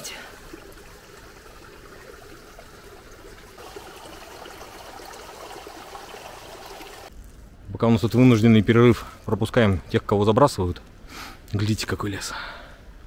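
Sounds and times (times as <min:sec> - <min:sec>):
water rushing through pipe: 0:00.0 - 0:07.1.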